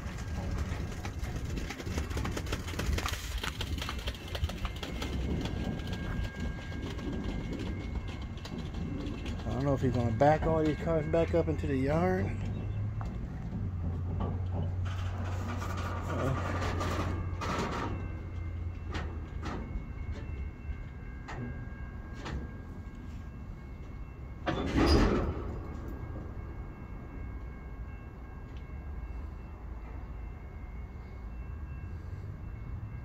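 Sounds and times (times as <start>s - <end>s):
wheels and couplers clicking: 0.0s - 20.2s.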